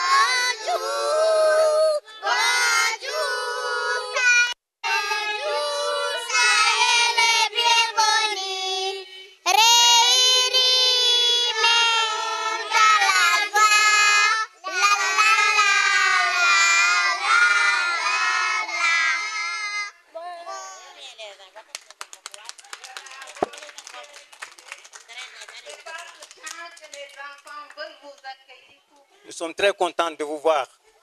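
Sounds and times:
children singing into microphone: 0:00.0 - 0:19.9.

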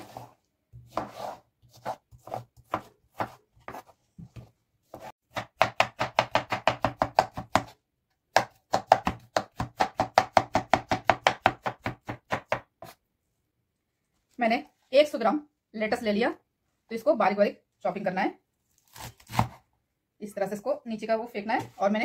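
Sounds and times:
knife chopping on wooden board: 0:00.8 - 0:13.0.

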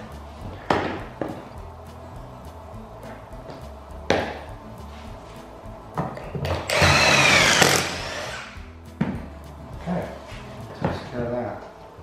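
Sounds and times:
background music: 0:00.0 - 0:12.0
cordless drill whining: 0:06.7 - 0:08.6.

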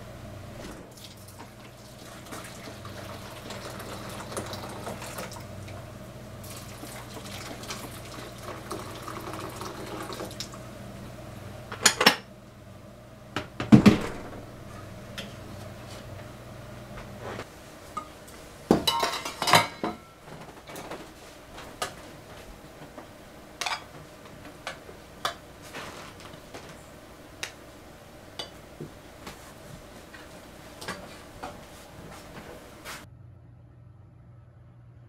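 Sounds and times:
metal bowls clinking: 0:18.8 - 0:20.2, 0:23.6 - 0:23.9.

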